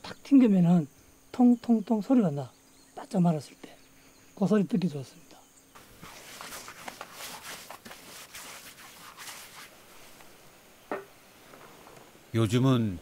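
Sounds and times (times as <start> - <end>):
paper rustling and crinkling: 5.8 - 10.3.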